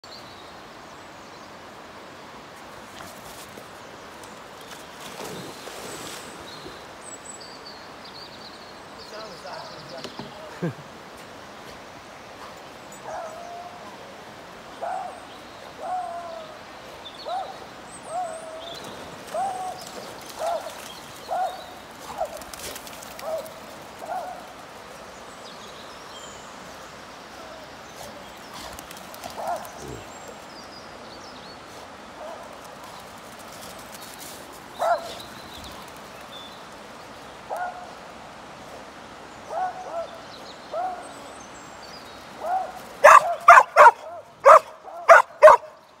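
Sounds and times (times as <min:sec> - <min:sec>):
flowing water: 0:08.7 - 0:45.8
dog barking: 0:42.4 - 0:45.7.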